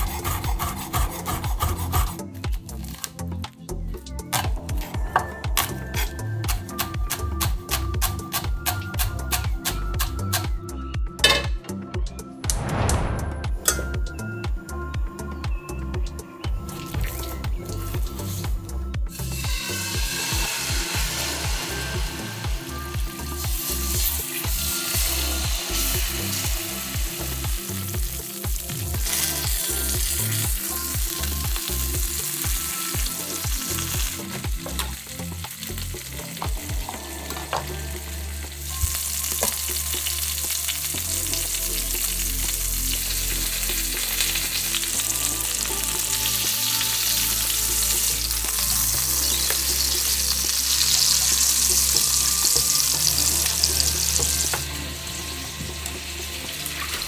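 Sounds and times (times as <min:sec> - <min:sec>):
chicken sizzling in pan: 0:16.7 - 0:57.0.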